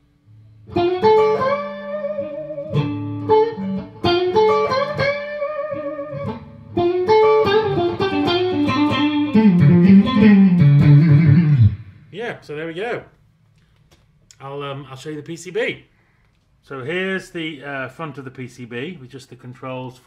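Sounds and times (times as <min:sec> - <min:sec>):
clean electric guitar notes: 0:00.3 - 0:12.0.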